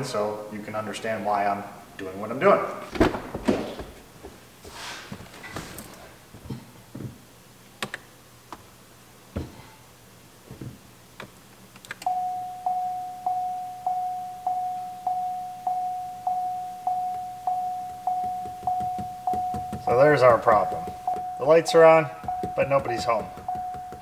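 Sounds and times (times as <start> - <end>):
car warning chime dinging: 12.0 - 24.0.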